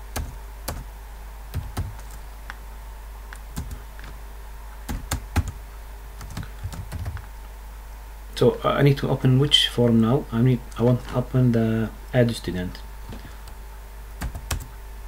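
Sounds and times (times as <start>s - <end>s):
low steady hum: 0.0s - 15.0s
keyboard typing: 1.5s - 2.2s, 3.4s - 4.2s, 4.9s - 5.6s, 6.2s - 7.3s, 14.2s - 14.8s.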